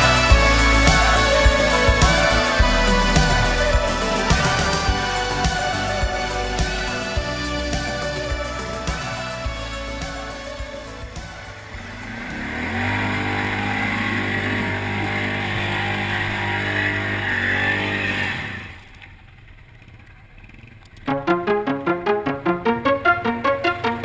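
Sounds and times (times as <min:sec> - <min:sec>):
music: 0:00.0 - 0:11.8, 0:21.1 - 0:24.0
quad engine revving: 0:00.0 - 0:19.1.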